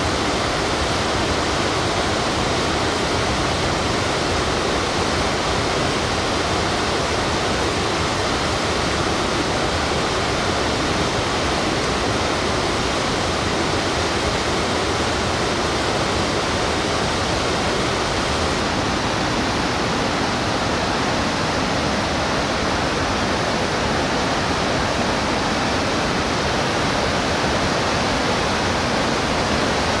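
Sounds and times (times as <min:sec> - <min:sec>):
river rushing over rocks: 0:00.0 - 0:30.0.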